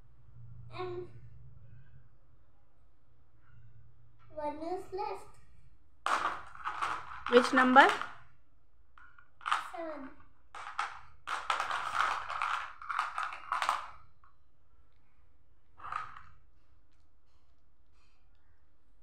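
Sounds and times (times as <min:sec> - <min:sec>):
plastic balls rattling in box: 0:06.0 - 0:08.3, 0:09.0 - 0:14.1, 0:15.8 - 0:16.4.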